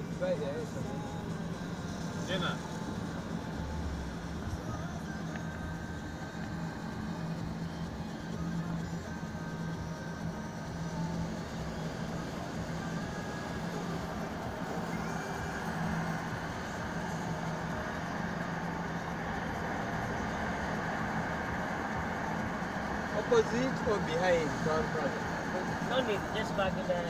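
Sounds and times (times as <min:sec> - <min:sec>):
car engine hum: 0:00.0 - 0:27.0
road noise: 0:00.0 - 0:27.0.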